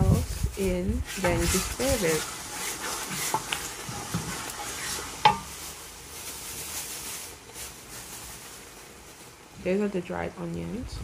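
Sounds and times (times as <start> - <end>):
wooden spoon stirring sauce in pot: 0.7 - 6.6
sauce sizzling: 1.1 - 9.4.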